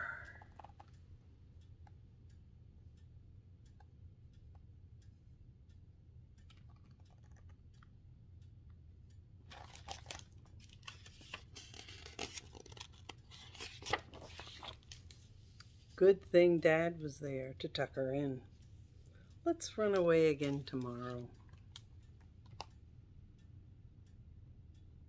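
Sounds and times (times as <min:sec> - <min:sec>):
faint low hum: 0:00.0 - 0:25.0
book pages rustling: 0:09.5 - 0:16.0.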